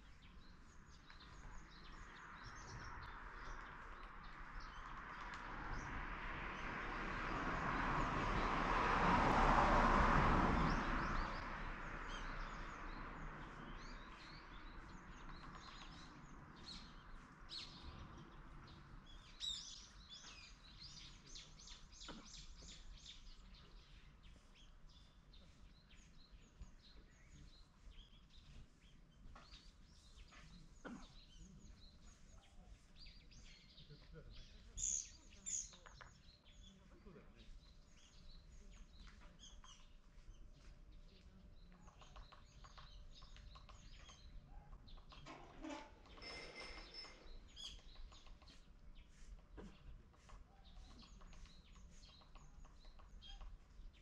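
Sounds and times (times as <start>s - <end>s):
small birds chirping: 0.0s - 6.0s, 10.6s - 54.0s.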